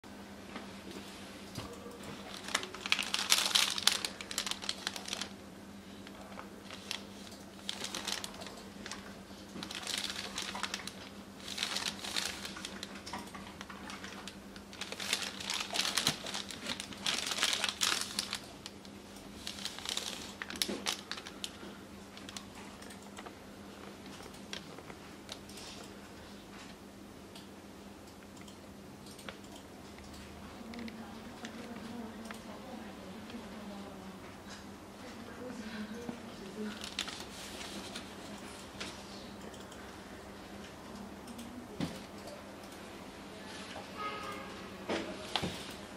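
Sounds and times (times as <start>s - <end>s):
faint steady hum: 0.1s - 45.9s
plastic pouches crinkling: 2.1s - 5.4s, 6.0s - 22.6s, 36.4s - 38.2s.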